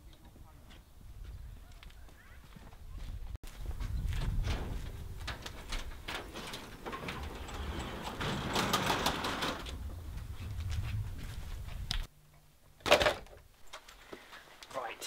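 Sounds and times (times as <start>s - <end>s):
footsteps: 0.6s - 12.1s
garage door scraping open: 5.6s - 9.9s.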